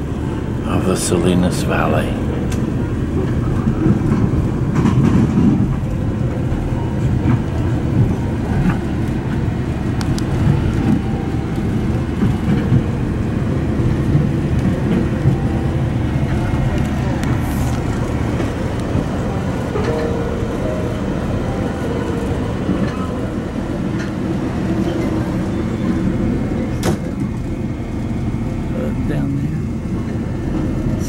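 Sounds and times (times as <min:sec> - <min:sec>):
train car rumbling on track: 0:00.0 - 0:31.0.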